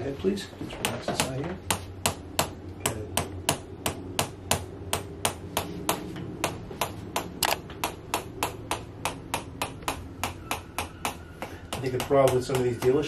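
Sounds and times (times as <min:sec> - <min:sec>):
adjusting instrument sharp clicks: 0:07.4 - 0:07.6.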